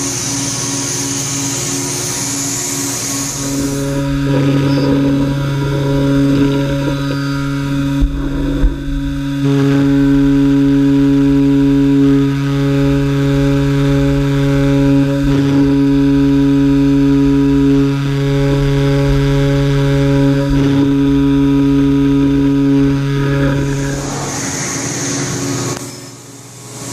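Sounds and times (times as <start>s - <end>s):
router spindle humming while cutting: 0.0s - 26.9s.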